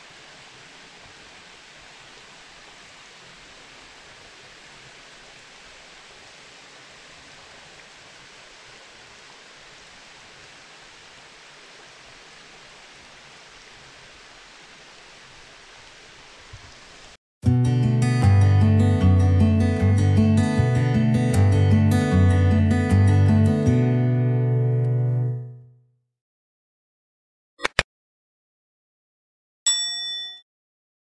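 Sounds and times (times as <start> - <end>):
stream water running over rocks: 0.0 - 17.2.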